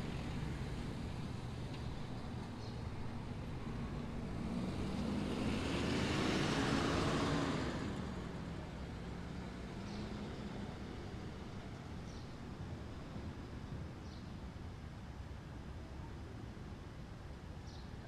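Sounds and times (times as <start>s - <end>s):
motor vehicle driving past: 3.8s - 8.5s.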